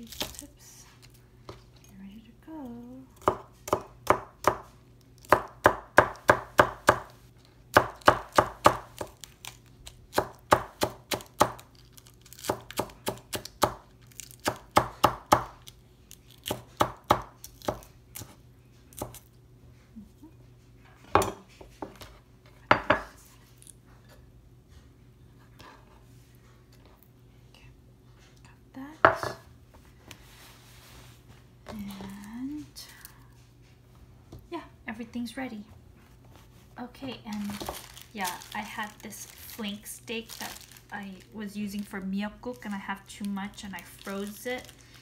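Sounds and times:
knife chopping on cutting board: 3.2 - 4.7, 5.3 - 7.1, 7.7 - 9.1, 29.1 - 29.4.

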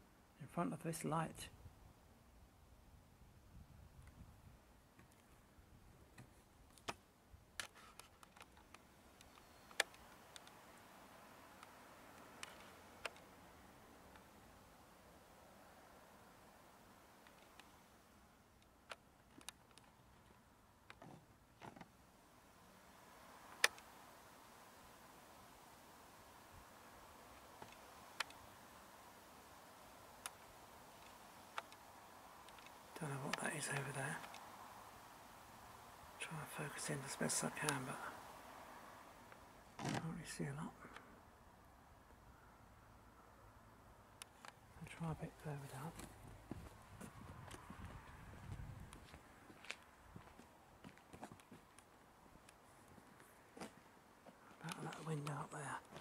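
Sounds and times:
steady hiss: 6.2 - 56.0
faint sharp clicks: 7.6 - 14.9, 15.8 - 17.8, 18.5 - 21.9, 23.2 - 40.0, 50.9 - 56.0.

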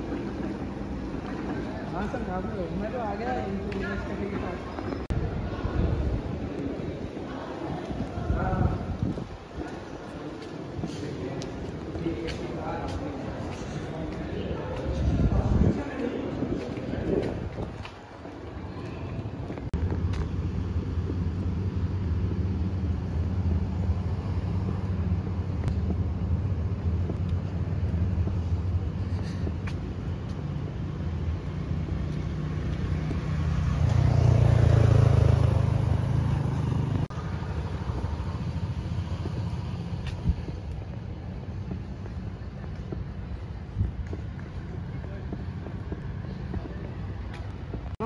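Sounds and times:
road traffic rumble: 0.0 - 48.0
car passing: 27.5 - 42.0.

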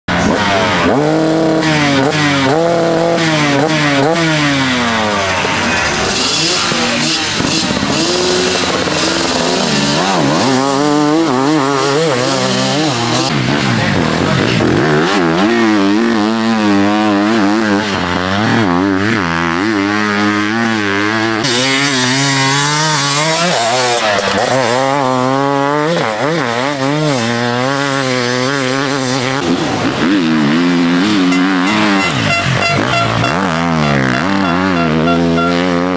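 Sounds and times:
dirt bike engines revving: 0.1 - 35.9.

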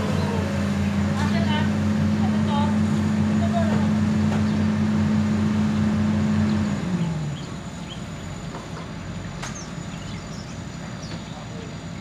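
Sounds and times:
excavator diesel engine winding down: 0.0 - 10.7.

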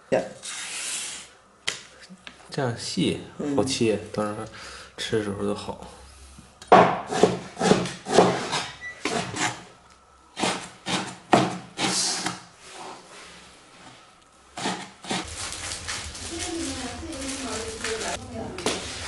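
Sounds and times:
cleaver chopping on wooden board: 6.7 - 8.4, 10.4 - 12.4.

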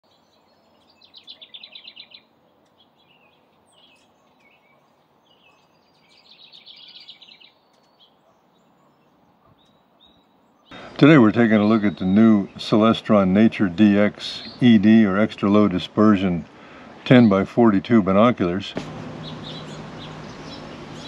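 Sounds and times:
bird call notes: 0.1 - 21.0
wren singing bubbling trills: 9.7 - 16.3.

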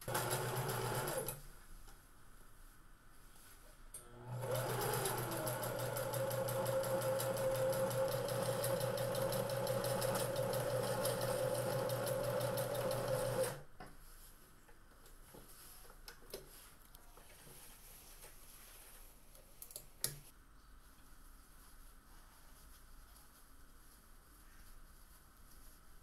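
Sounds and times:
sewing machine stitching: 0.0 - 1.4, 4.2 - 13.6.

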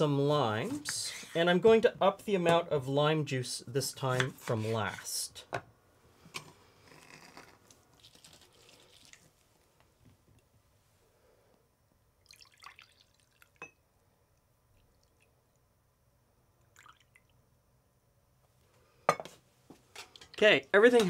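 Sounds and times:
juice trickling and dripping: 8.0 - 9.5, 12.2 - 13.6, 14.7 - 15.7, 16.6 - 17.4
light glass clink: 13.6 - 13.8.

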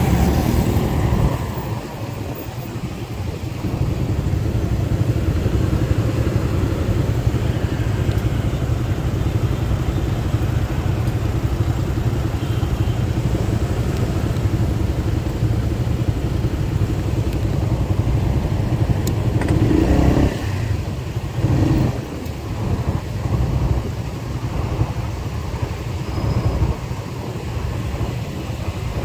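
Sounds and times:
traffic: 0.0 - 29.0
motorcycle engine idling: 1.0 - 20.0.

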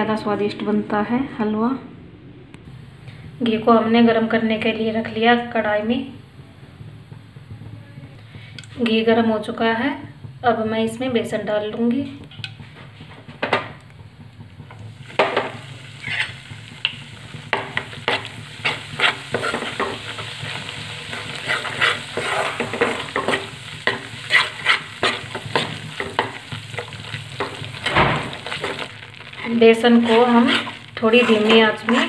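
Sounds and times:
frying sizzle: 2.6 - 32.0
metal spoon scraping pan: 15.3 - 32.0.

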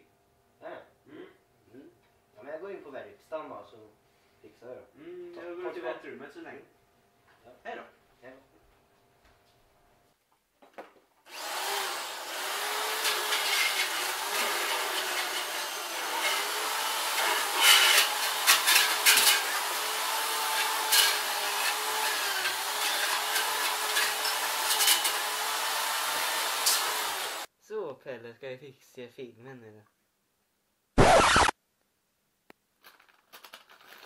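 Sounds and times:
disc scraping on grinder: 11.3 - 27.5
electric grinder motor whine: 11.3 - 27.5.

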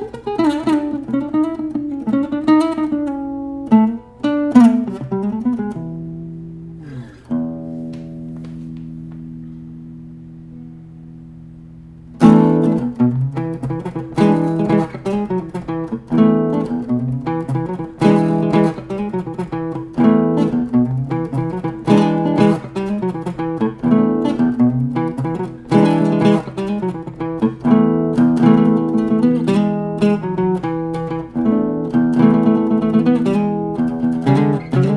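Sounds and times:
fingerstyle acoustic guitar: 0.0 - 34.9.

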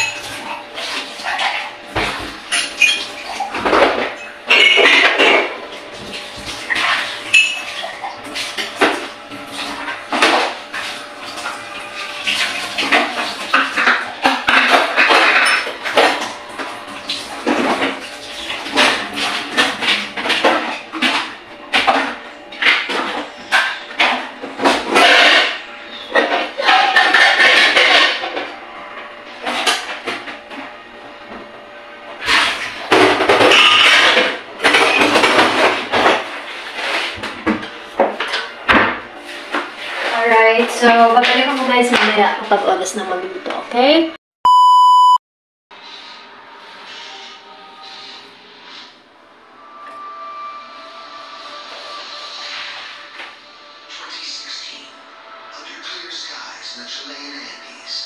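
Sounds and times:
dishes and utensils clattering: 0.0 - 44.0.

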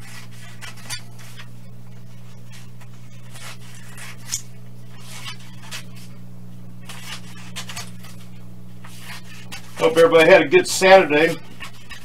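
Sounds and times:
paper rustle: 0.0 - 6.2, 6.8 - 12.0
steady low hum: 0.0 - 12.0
scissors snipping paper: 6.8 - 10.0.

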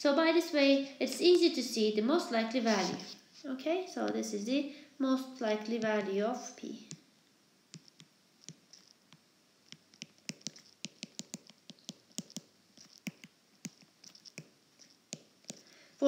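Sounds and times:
pen writing clicks and scratches: 7.8 - 9.0, 9.7 - 15.6.

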